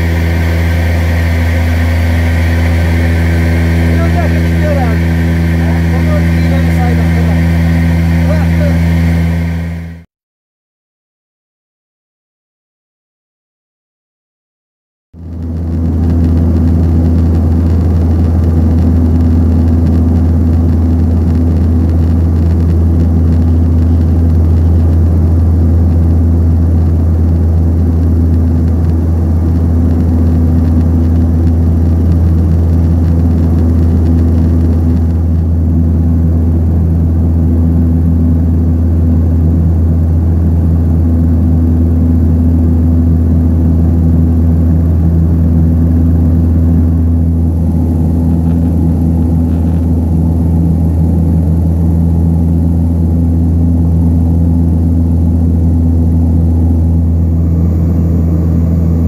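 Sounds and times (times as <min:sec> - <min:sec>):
turboprop engines droning in cabin: 0:00.0 - 0:10.1, 0:15.2 - 0:59.0.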